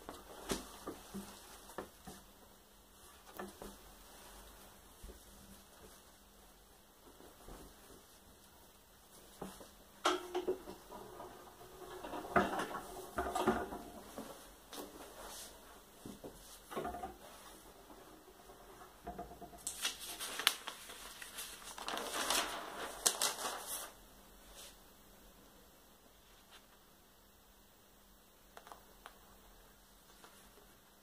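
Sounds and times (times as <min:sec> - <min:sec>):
paper rustling: 0:19.6 - 0:24.0.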